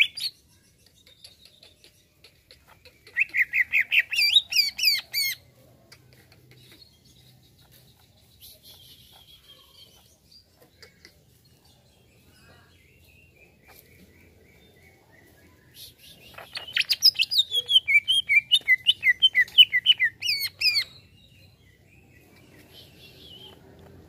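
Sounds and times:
bird singing: 0.0s - 5.4s, 6.5s - 24.0s.

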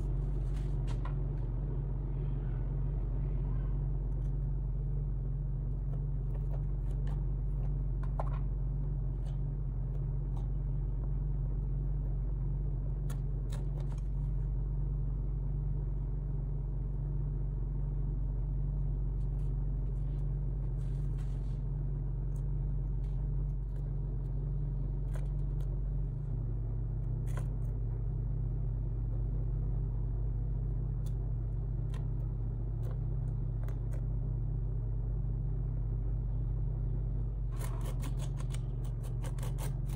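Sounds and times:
low rumble and hum: 0.0s - 39.9s
palette knife scraping: 37.5s - 39.9s.

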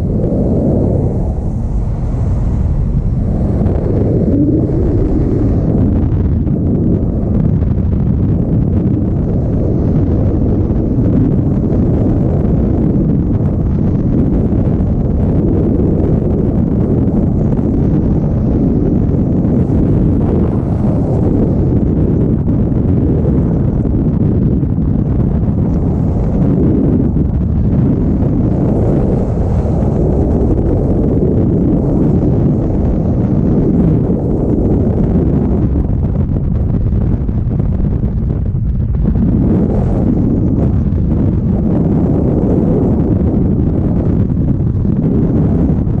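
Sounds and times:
wind buffeting microphone: 0.0s - 46.0s.

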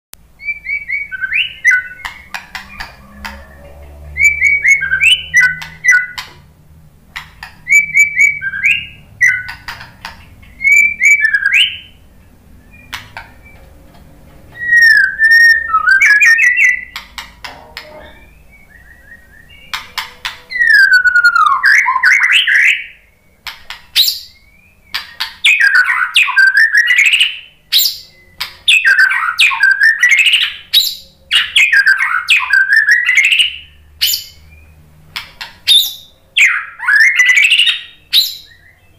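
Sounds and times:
bird singing whistled phrases: 0.4s - 6.2s, 7.7s - 9.6s, 10.5s - 12.0s, 14.6s - 17.0s, 17.8s - 19.8s, 20.5s - 34.7s, 35.7s - 38.9s
bird clicking notes: 1.6s - 3.5s, 4.4s - 6.4s.

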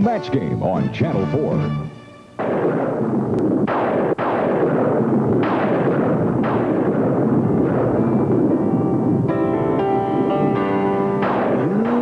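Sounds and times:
thunder claps: 2.4s - 12.0s
thunder rumble: 2.4s - 12.0s.

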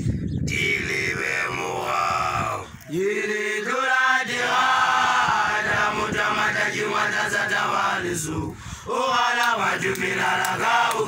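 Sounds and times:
young people chanting: 0.8s - 11.0s.

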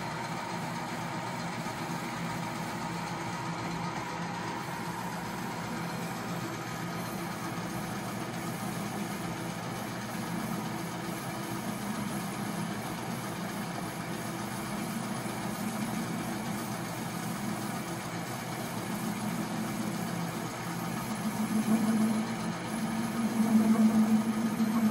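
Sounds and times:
metal lathe humming: 14.6s - 24.9s.

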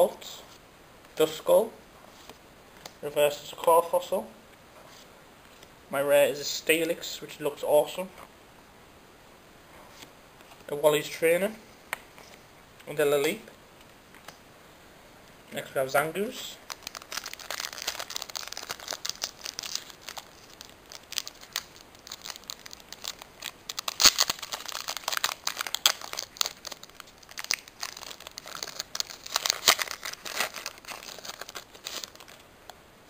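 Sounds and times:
foil wrapper crinkling and tearing: 16.6s - 32.5s.

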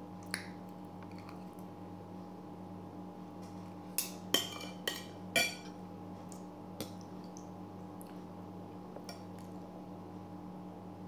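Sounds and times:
cutlery clinking on plate: 4.0s - 5.7s.

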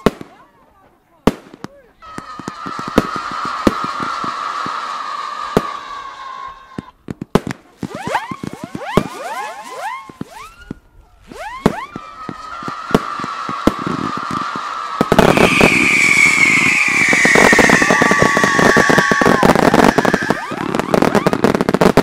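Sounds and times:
firework crackling and popping: 1.2s - 22.0s
firework whistles: 7.9s - 22.0s.

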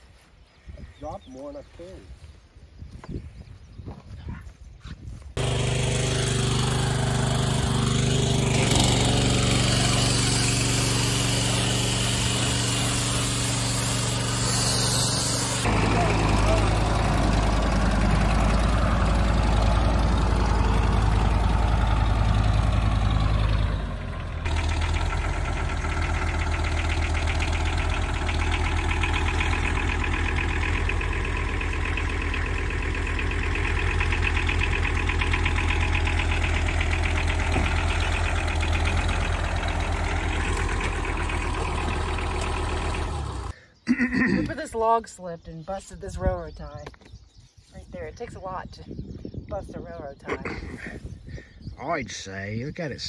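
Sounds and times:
tractor diesel engine running: 5.4s - 43.6s.

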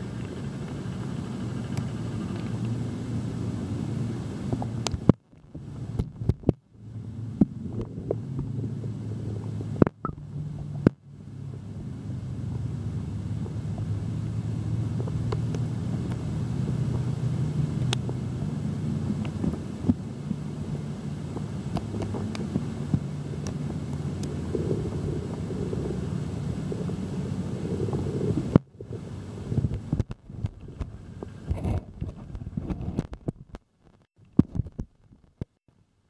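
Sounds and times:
low underwater rumble and hum: 0.0s - 35.6s
faint clicks: 0.1s - 2.8s.

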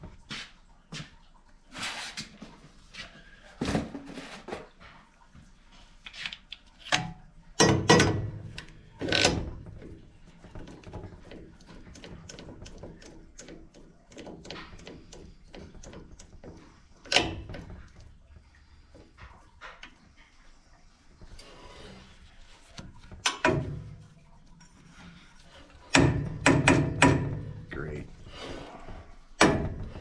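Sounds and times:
sharp metal knocks: 7.6s - 8.4s, 25.9s - 27.7s, 29.4s - 30.0s.

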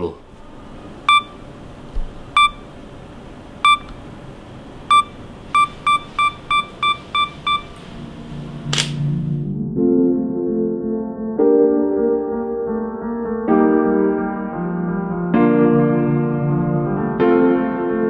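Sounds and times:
music: 6.5s - 18.0s
camera shutter click: 8.7s - 9.0s.

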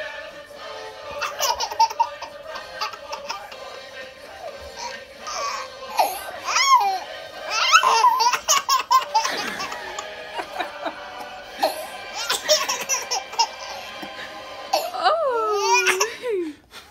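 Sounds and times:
baby laughing: 1.1s - 3.7s, 4.7s - 11.0s, 11.6s - 14.0s, 14.7s - 16.2s.

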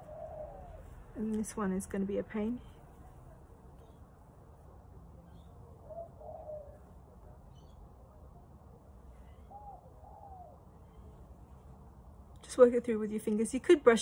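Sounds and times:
dove cooing: 0.0s - 1.1s, 5.6s - 6.9s, 9.2s - 10.7s.

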